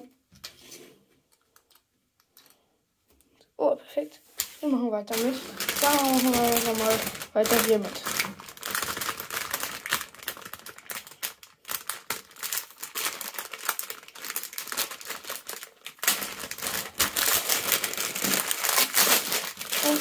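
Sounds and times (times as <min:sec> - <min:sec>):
plastic foil bag crinkling: 0:04.4 - 0:20.0.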